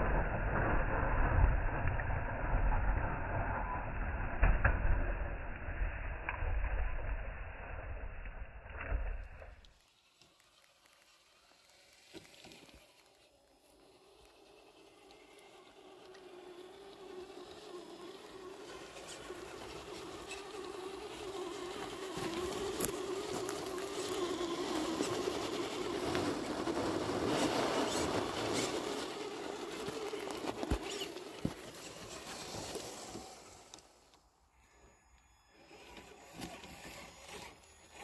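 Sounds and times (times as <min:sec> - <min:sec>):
electric motor and gears whining: 0:09.1 - 0:38.0
tyres crackling over dirt and sticks: 0:09.7 - 0:34.2.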